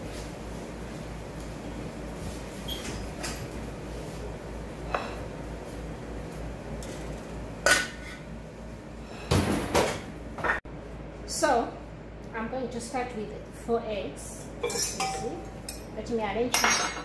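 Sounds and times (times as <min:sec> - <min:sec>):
dishes clattering: 0:07.7 - 0:08.2, 0:14.6 - 0:15.4, 0:16.5 - 0:17.0.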